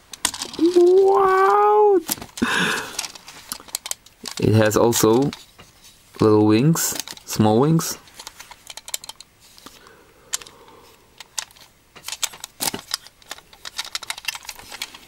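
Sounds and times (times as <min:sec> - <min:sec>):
plastic toy clicking and tapping: 0:08.2 - 0:09.3, 0:11.2 - 0:15.0.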